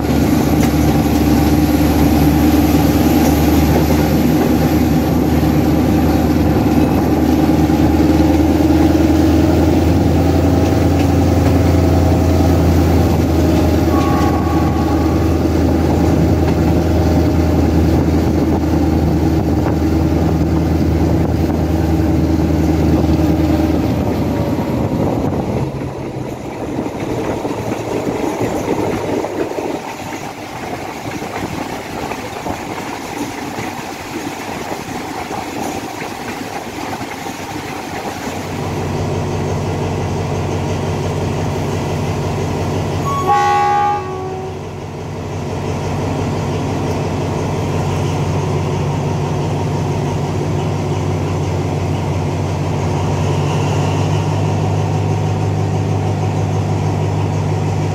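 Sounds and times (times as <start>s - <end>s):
locomotive engine drone: 0.0s - 57.9s
train rumbling along track: 0.0s - 57.9s.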